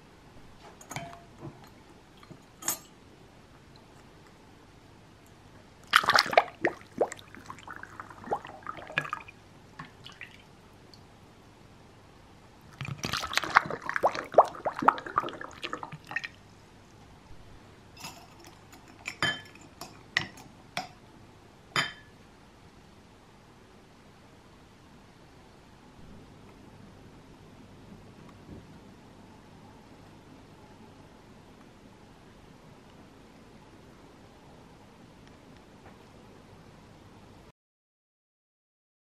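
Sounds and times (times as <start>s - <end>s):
glass clinks: 0.8s - 1.3s, 21.8s - 22.1s
liquid pouring and dripping: 5.8s - 11.1s, 12.7s - 16.4s.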